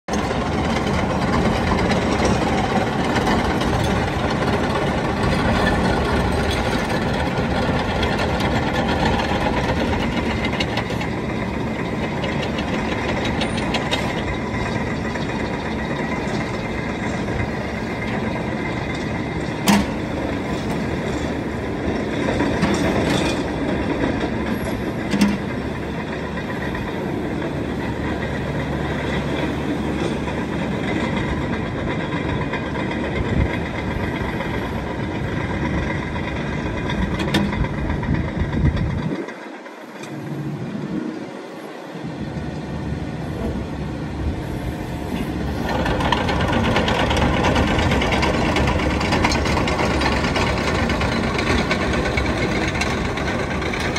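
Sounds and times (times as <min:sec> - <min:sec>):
excavator diesel engine running: 0:00.1 - 0:53.9.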